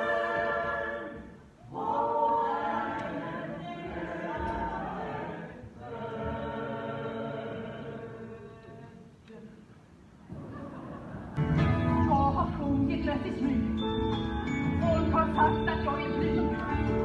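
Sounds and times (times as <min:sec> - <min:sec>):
choir singing held chords: 0:00.0 - 0:09.5.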